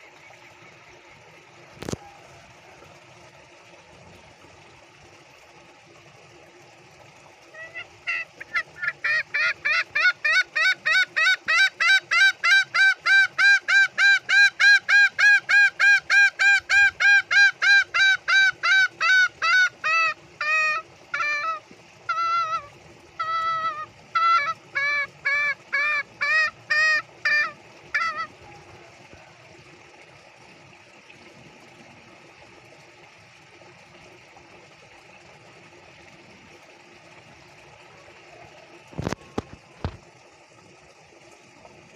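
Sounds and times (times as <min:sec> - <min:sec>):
junglefowl cackling call: 0:07.5 - 0:29.4.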